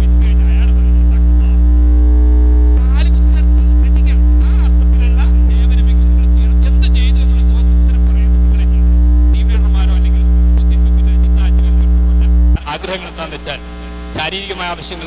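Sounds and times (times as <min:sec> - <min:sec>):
faint voice: 0:00.0 - 0:01.7, 0:02.8 - 0:13.6
electrical mains hum: 0:00.0 - 0:15.0.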